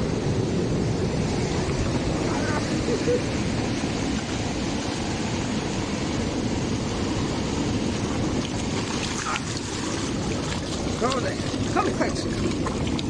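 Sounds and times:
breaking surf: 0:00.0 - 0:13.0
wind buffeting microphone: 0:00.0 - 0:13.0
feet wading through shallow water: 0:07.6 - 0:13.0.

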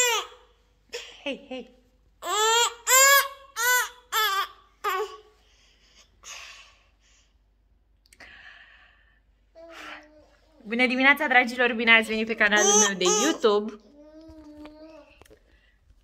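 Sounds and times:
toddler squealing with laughter: 0:02.2 - 0:05.0.

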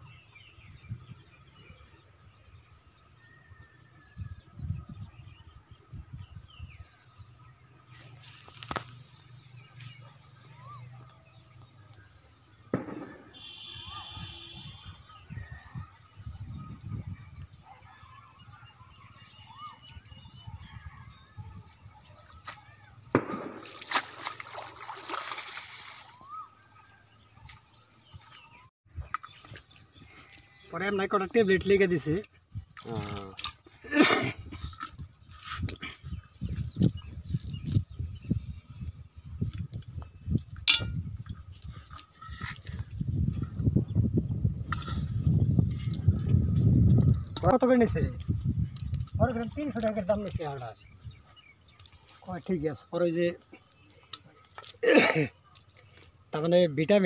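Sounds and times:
bird chirps: 0:00.0 - 0:32.8, 0:43.3 - 0:56.5
water splashing and sloshing: 0:22.1 - 0:26.4.

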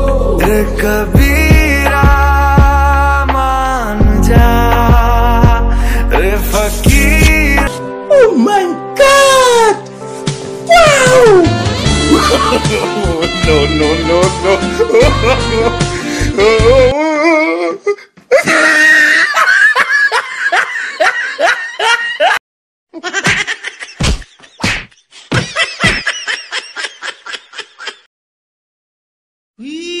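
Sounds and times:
background music: 0:00.0 - 0:17.0
loud laughter: 0:12.0 - 0:13.6, 0:18.3 - 0:22.4, 0:23.0 - 0:24.6, 0:25.3 - 0:28.1.

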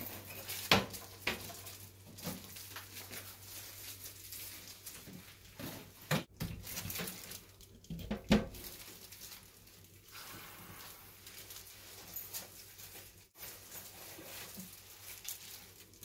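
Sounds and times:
plastic parts knocking in sink: 0:06.0 - 0:08.7.

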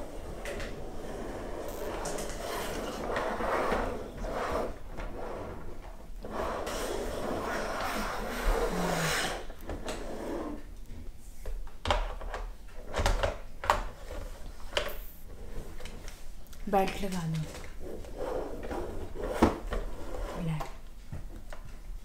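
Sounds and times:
toy car wheels rolling on tabletop: 0:00.2 - 0:05.7.

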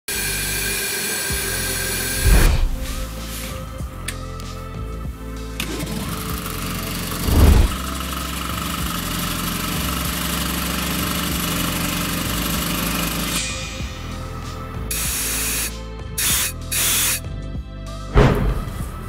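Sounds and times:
air compressor humming and whining: 0:00.1 - 0:04.0, 0:05.6 - 0:17.2
background music: 0:00.2 - 0:19.0
compressed air hiss: 0:01.5 - 0:03.8, 0:13.2 - 0:17.3
motor starting thump: 0:02.0 - 0:03.4, 0:05.6 - 0:08.0
loud low thud: 0:02.2 - 0:03.2, 0:07.2 - 0:07.8, 0:18.1 - 0:18.9.

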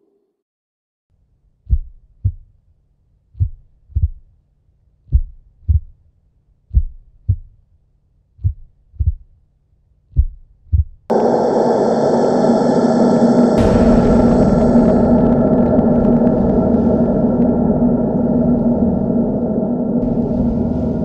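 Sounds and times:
heartbeat thumps: 0:01.7 - 0:02.5, 0:03.4 - 0:04.3, 0:05.1 - 0:06.0, 0:06.7 - 0:07.6, 0:08.4 - 0:09.3, 0:10.1 - 0:11.1, 0:13.6 - 0:21.0.

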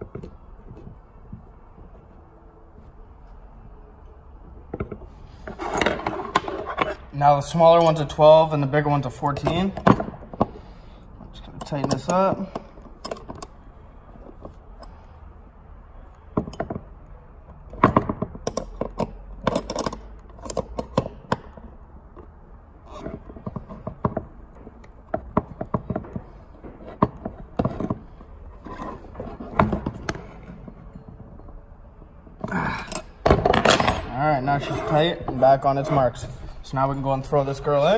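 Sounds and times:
wrenches clinking against nuts: 0:05.7 - 0:10.0, 0:11.3 - 0:13.6, 0:17.8 - 0:21.4.

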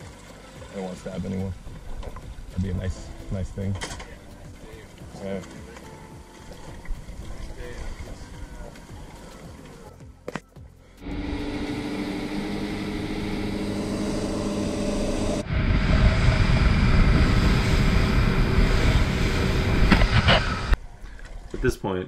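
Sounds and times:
rush of wind and water: 0:04.4 - 0:09.6, 0:15.2 - 0:20.8
outboard motors running: 0:11.0 - 0:20.8.

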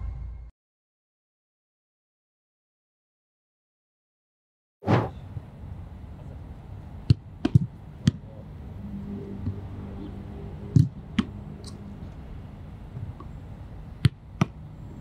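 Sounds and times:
ball being struck: 0:07.0 - 0:08.3, 0:10.7 - 0:11.8, 0:14.0 - 0:14.6.

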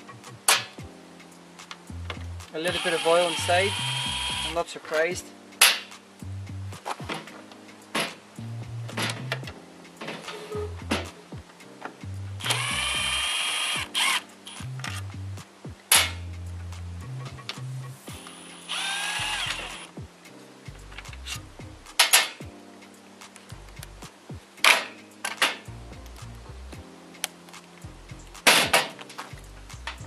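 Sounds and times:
background music: 0:00.0 - 0:30.0
cordless driver motor whine: 0:02.7 - 0:04.6, 0:12.4 - 0:14.2, 0:18.7 - 0:19.9.

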